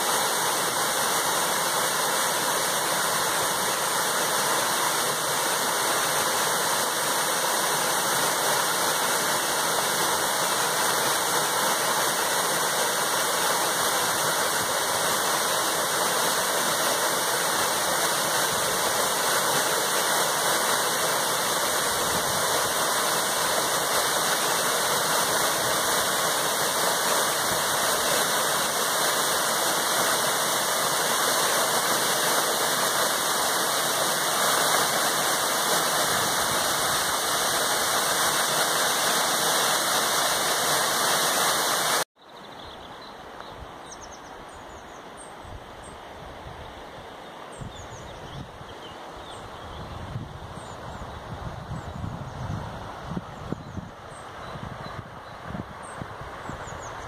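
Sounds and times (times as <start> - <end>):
waterfall splashing into pool: 0.0 - 42.1.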